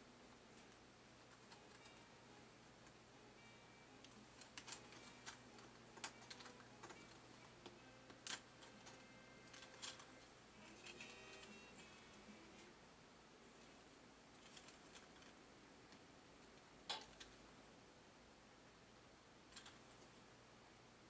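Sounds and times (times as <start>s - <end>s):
plastic gear parts clicking: 4.0s - 7.4s, 8.1s - 10.1s.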